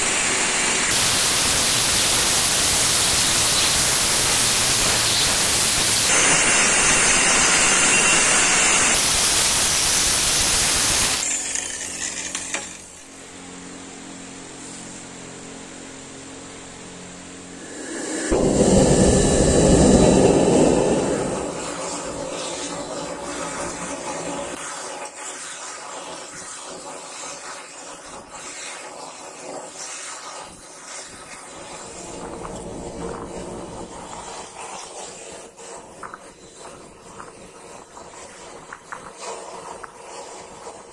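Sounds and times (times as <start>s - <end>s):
gas burner hissing: 0.0s - 11.3s, 17.4s - 40.9s.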